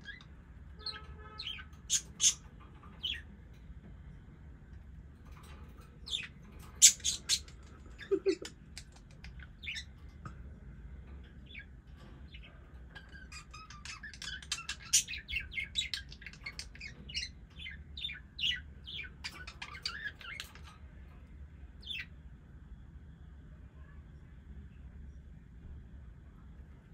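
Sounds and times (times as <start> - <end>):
budgies chirping: 0.0 - 3.3, 6.0 - 10.1, 11.4 - 20.7.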